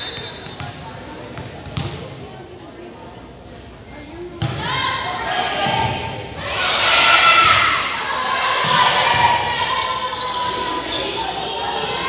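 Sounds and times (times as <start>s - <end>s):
people shouting and cheering: 4.6s - 12.0s.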